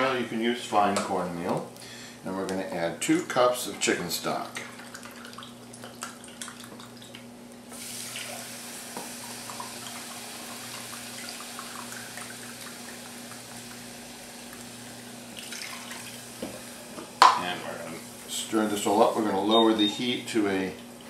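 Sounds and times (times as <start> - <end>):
liquid pouring into saucepan: 4.2 - 16.4.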